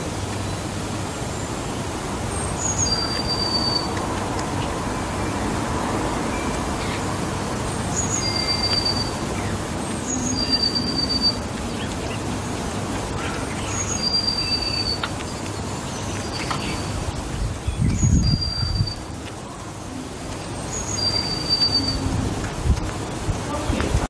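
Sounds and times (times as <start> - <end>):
distant traffic rumble: 0.0 - 24.0
songbird whistling: 2.6 - 4.0, 8.0 - 9.5, 10.1 - 11.4, 13.6 - 15.1, 17.8 - 19.0, 20.7 - 22.1.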